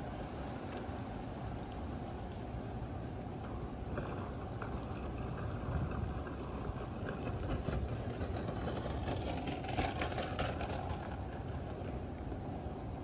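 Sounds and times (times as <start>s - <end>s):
rainy city street ambience: 0.0s - 13.0s.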